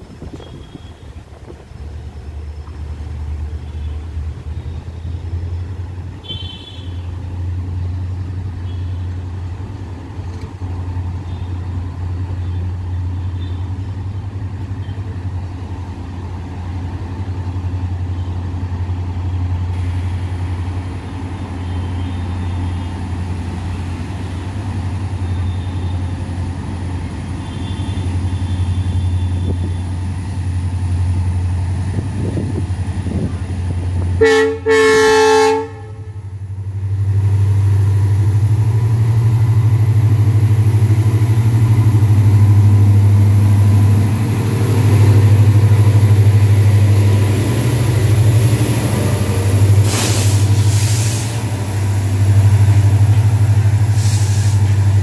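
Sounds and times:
diesel locomotive engine drone: 0.0 - 55.0
locomotive horn: 6.2 - 7.2, 34.2 - 36.3.

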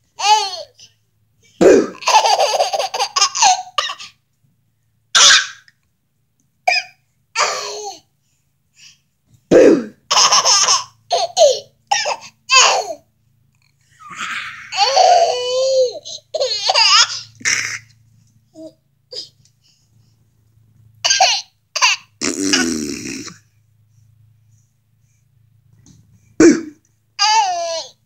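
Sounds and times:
baby laughing: 0.2 - 0.9, 1.6 - 4.1, 10.1 - 13.0, 14.0 - 17.9, 21.0 - 23.4, 26.4 - 28.0.

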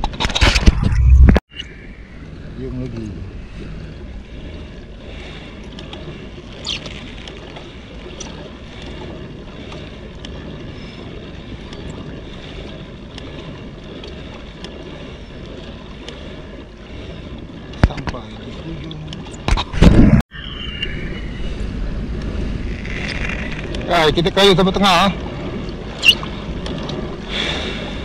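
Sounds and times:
wind noise on microphone: 0.0 - 4.0, 19.4 - 28.0
water sloshing against kayak: 0.0 - 28.0.

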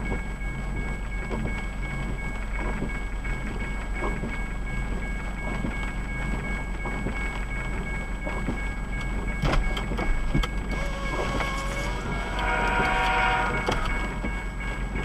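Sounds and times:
railroad crossing bell ringing: 0.0 - 15.0
brief horn-like tone: 10.7 - 14.2
rain: 10.7 - 15.0.

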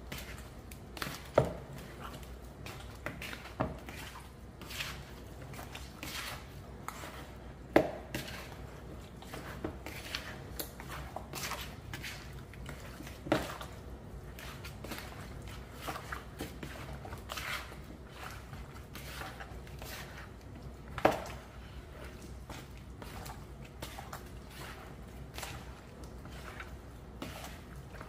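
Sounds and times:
wet squishing of meat: 0.0 - 28.0.

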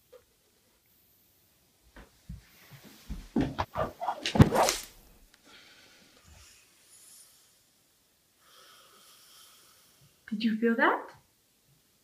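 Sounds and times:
stick whip swishing and smacking: 3.6 - 5.1.

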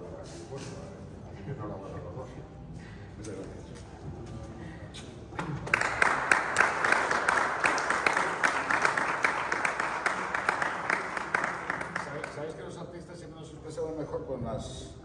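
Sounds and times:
audience applauding: 5.4 - 12.6.

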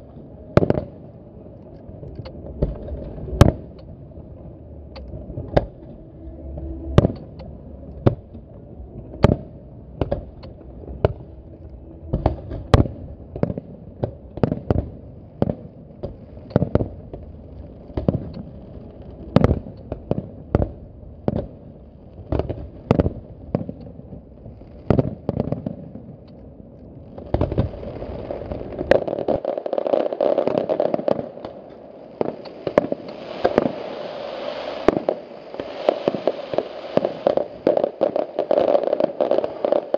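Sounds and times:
dense fireworks crackle: 0.0 - 39.9
fireworks shells bursting: 28.8 - 39.9.

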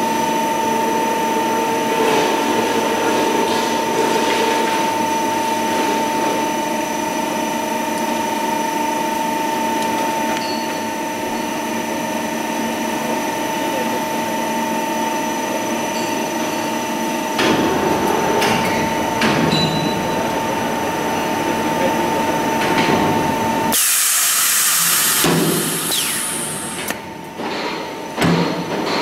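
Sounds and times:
machine humming: 16.8 - 27.3
loud hiss: 23.7 - 26.8.

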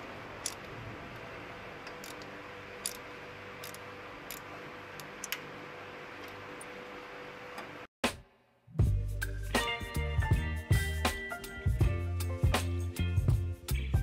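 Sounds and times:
steady background hum: 0.0 - 8.6
ratchet wrench clicks: 1.8 - 3.0, 3.6 - 4.5.

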